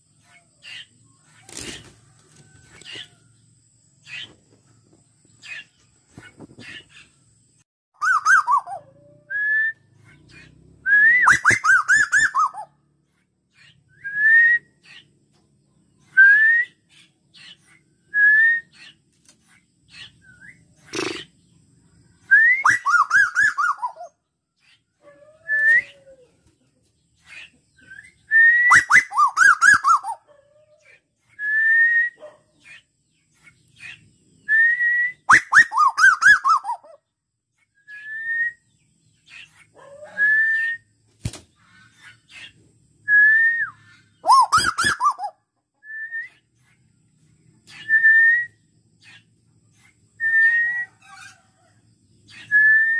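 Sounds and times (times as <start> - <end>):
bird whistling calls: 8.0 - 12.7, 22.3 - 24.1, 25.4 - 26.2, 27.3 - 30.2, 33.8 - 37.0, 37.8 - 40.9, 43.1 - 46.5, 47.7 - 49.2, 50.2 - 51.4, 52.3 - 52.9.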